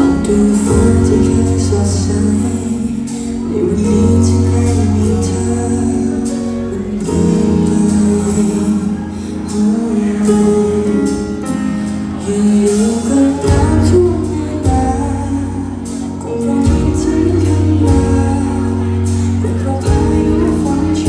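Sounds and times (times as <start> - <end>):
drums: 0.0 - 21.0
heavy bass notes: 0.0 - 21.0
keyboard: 0.0 - 21.0
woman singing: 12.2 - 21.0.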